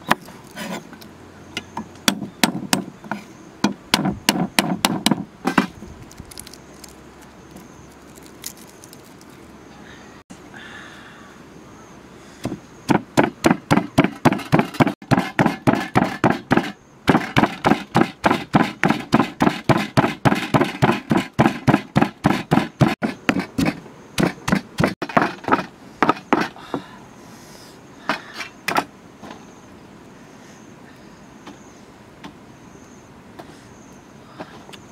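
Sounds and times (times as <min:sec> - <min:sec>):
pestle pounding in stone mortar: 0:03.6 - 0:05.7, 0:12.4 - 0:26.5.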